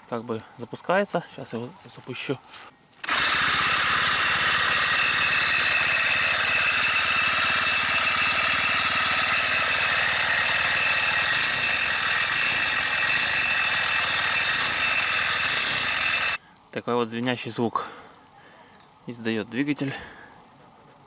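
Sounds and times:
motorized bicycle engine running: 3.0 - 16.4.

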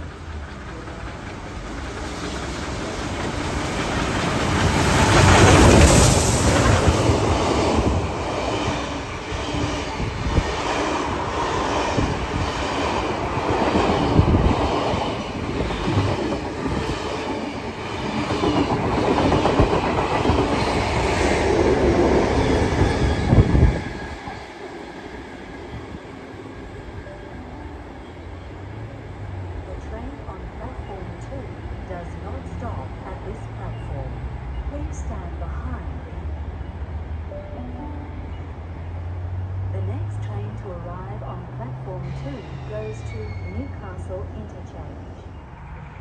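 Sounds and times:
steam locomotive passing: 0.0 - 46.0
wheel squeal: 42.1 - 43.7.

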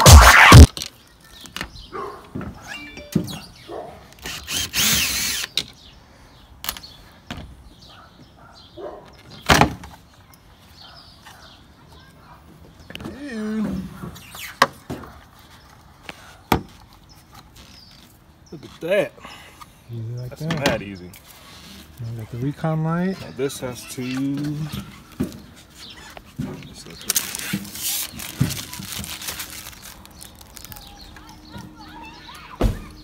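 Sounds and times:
electronic music: 0.0 - 0.7.

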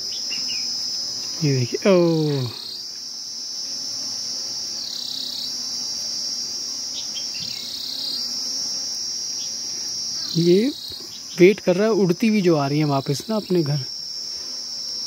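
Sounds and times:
bees buzzing: 0.0 - 15.0
insects chirring: 0.0 - 15.0.

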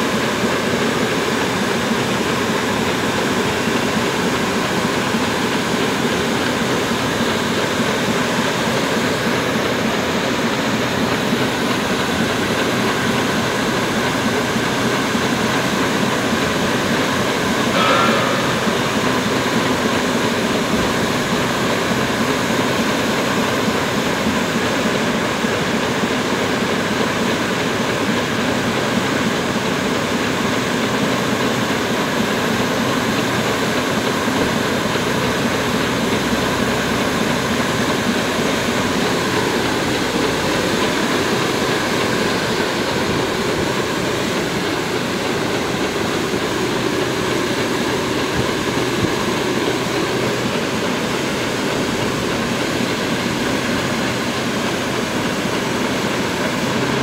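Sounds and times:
low machine hum: 0.3 - 24.3.

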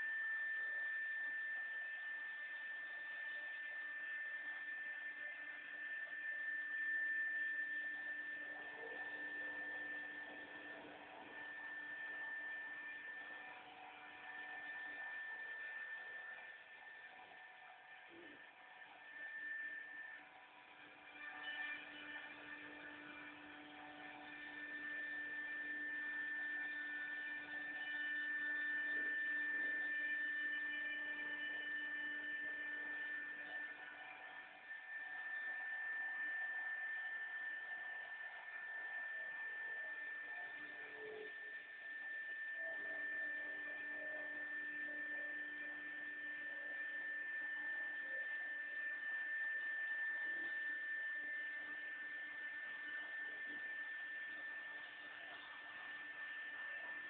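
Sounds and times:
cnc router high whine: 0.0 - 57.0.

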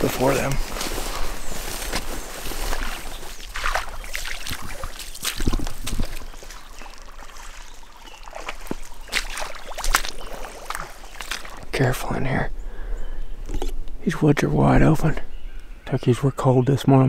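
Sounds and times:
clothing rustling: 0.0 - 11.6
footsteps squelching in mud: 0.0 - 11.9.

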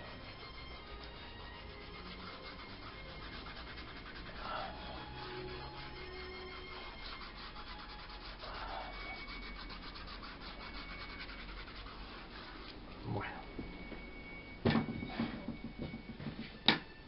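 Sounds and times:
fingers rubbing on paper: 0.0 - 13.5.

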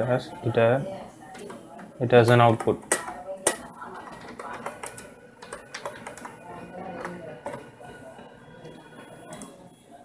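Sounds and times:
computer keyboard typing: 4.1 - 6.4.

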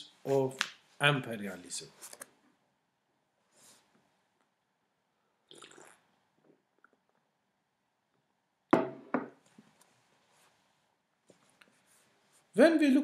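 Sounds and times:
sipping from a mug: 5.4 - 7.1
mug knocking on a table: 8.8 - 9.4.

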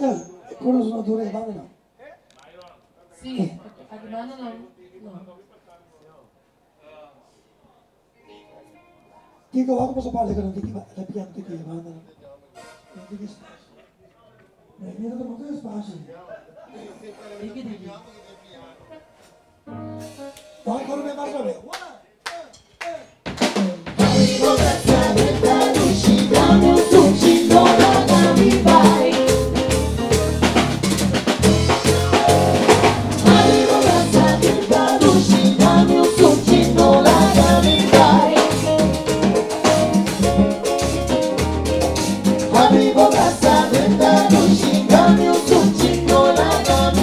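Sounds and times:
drum kit: 19.8 - 20.7, 22.4 - 47.0
bass: 24.0 - 47.0
keyboards: 24.0 - 47.0
woman singing: 33.2 - 38.8, 42.6 - 47.0.

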